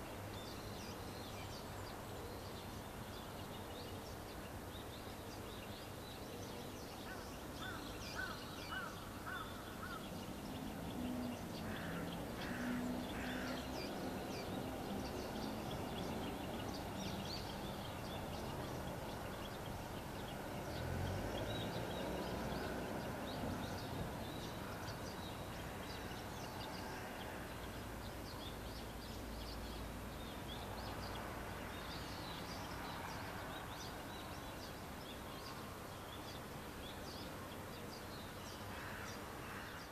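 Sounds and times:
birds chirping and calling: 0.0s - 39.9s
low repeated bird calls: 0.0s - 39.9s.

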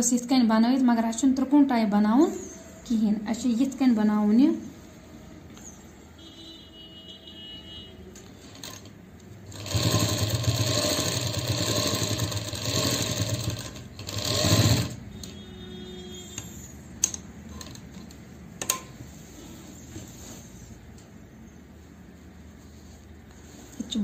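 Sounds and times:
sewing machine stitching: 9.5s - 15.0s.

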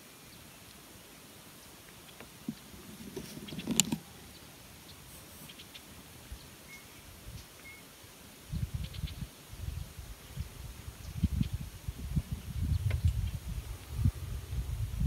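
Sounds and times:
camera handling noise: 2.9s - 4.1s.

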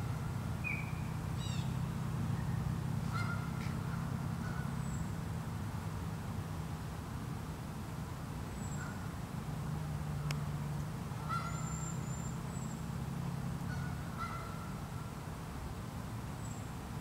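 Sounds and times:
geese calling: 3.1s - 4.8s, 11.2s - 12.0s, 13.7s - 14.8s.

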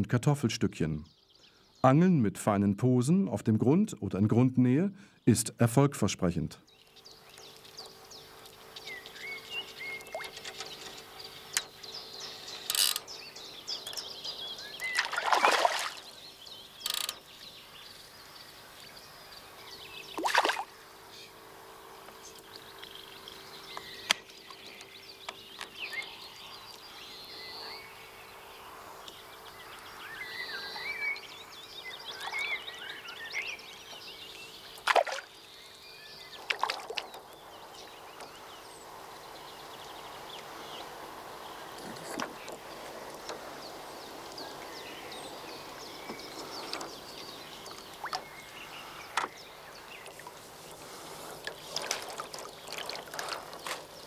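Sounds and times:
birds chirping: 0.0s - 54.0s
fish splashing water: 14.9s - 16.1s, 20.2s - 20.7s, 34.8s - 35.4s, 36.4s - 37.2s, 51.4s - 53.9s.

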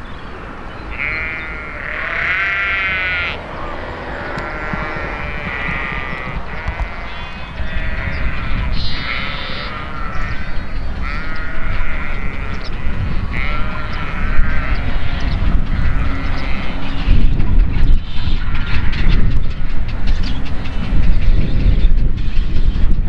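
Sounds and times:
sheep bleating: 0.9s - 16.9s.

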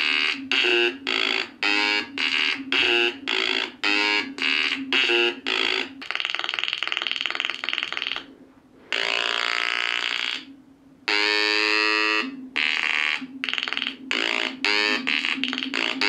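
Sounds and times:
buzzing square-wave synth notes: 0.0s - 16.0s
low steady hum: 8.2s - 16.0s.

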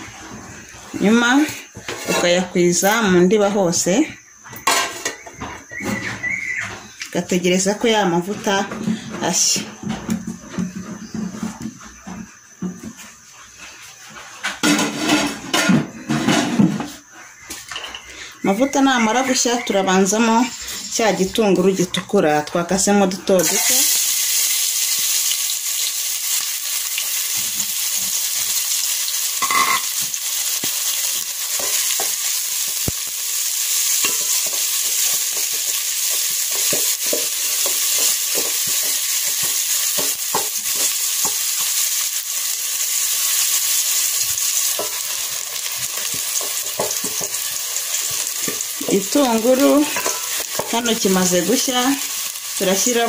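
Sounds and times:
onion sizzling in hot oil: 18.4s - 53.0s.

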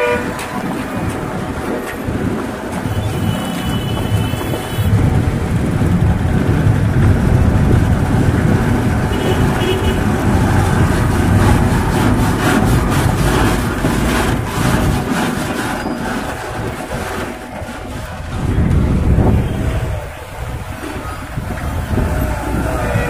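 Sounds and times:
truck diesel engine rumbling: 0.0s - 23.0s
rapid crackling: 0.4s - 23.0s.

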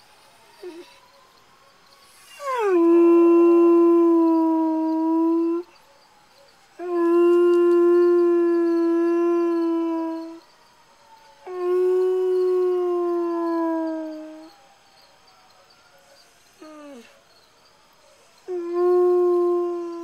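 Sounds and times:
distant sirens: 0.0s - 20.0s
dog howling: 0.6s - 1.2s, 2.1s - 5.8s, 6.8s - 10.4s, 11.4s - 14.6s, 16.6s - 17.2s, 18.4s - 20.0s.

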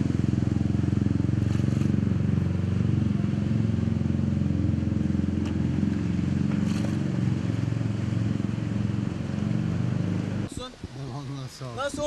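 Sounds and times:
engine idling: 0.0s - 9.3s.

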